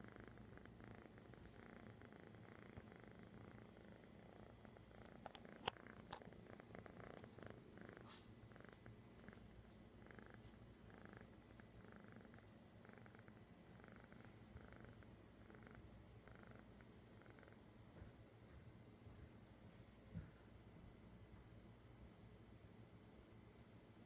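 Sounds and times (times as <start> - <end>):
kitten purring: 0.0 - 18.2.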